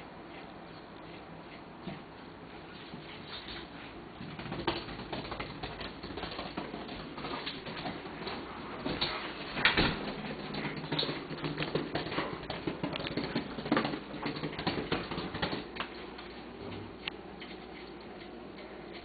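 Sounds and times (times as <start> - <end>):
dog claws clicking on hard floor: 4.2 - 16.3.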